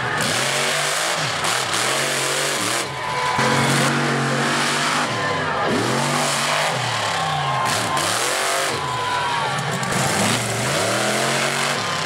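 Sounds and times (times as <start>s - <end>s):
truck engine revving: 0.0s - 12.0s.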